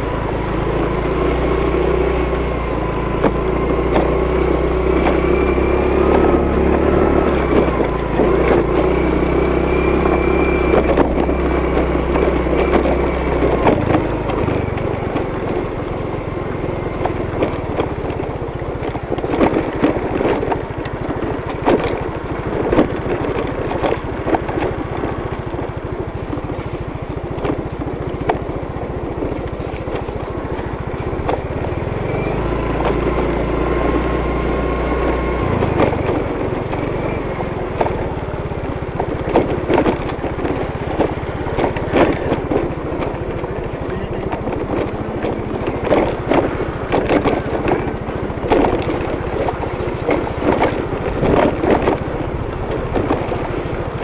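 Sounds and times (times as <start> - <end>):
motorcycle engine running: 0.0 - 54.0
knocks from bumps: 38.9 - 54.0.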